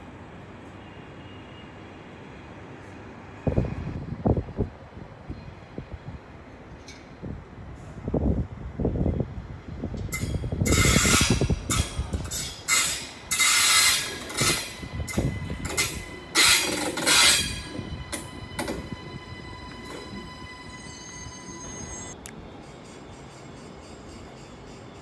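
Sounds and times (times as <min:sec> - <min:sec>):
train passing: 0:00.0 - 0:25.0.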